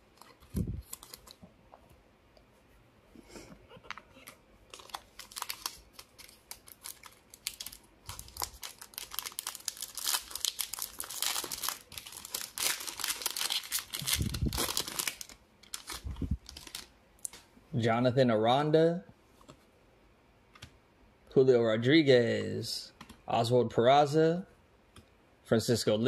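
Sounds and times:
foil wrapper crinkling and tearing: 0.2 - 1.4, 4.7 - 16.9.

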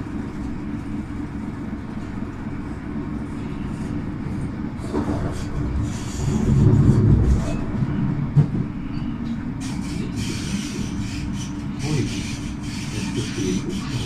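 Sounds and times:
train rumbling on track: 0.0 - 14.0
wheels hissing on rail: 4.8 - 7.6, 9.6 - 14.0.

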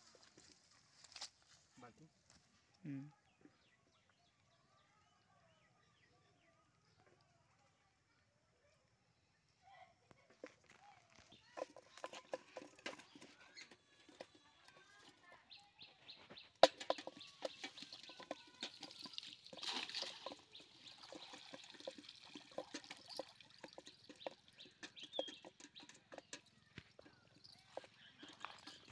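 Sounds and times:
cast net rattling and clicking: 10.3 - 28.9
birds chirping: 10.4 - 28.9.

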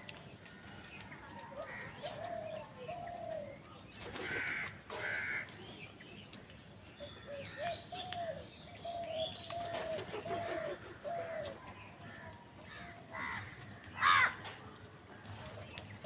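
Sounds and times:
crows cawing: 4.2 - 5.6, 10.3 - 14.5.

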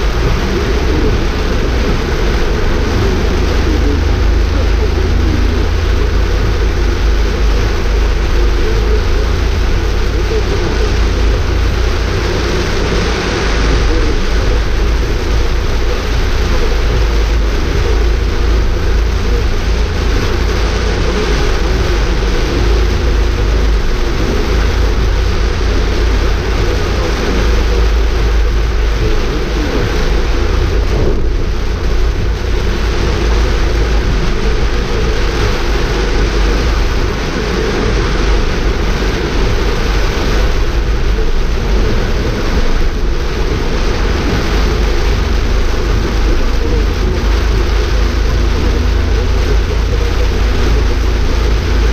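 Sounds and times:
engine and road rumble: 0.0 - 51.9
rain on car windshield: 0.0 - 51.9
tyres on wet road: 0.0 - 51.9.

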